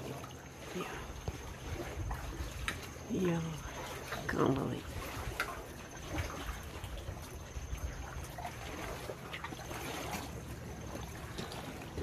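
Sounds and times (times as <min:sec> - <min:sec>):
low steady rumble: 0:00.0 - 0:12.0
paddle dipping: 0:00.0 - 0:12.0
water trickling and splashing: 0:00.0 - 0:12.0.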